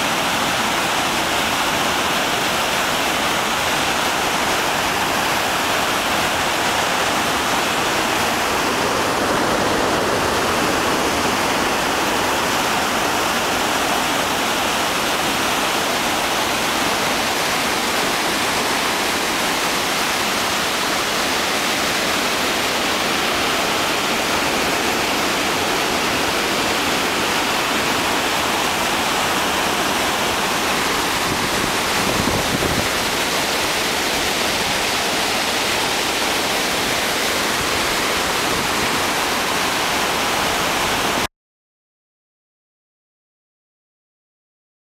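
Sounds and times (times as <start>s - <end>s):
rush of falling water: 0.0s - 41.3s.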